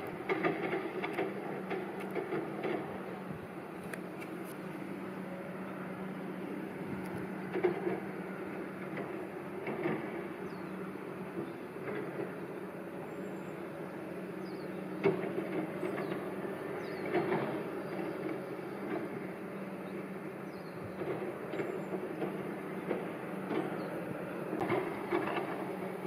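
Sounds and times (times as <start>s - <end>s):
distant traffic hum: 0.0s - 26.0s.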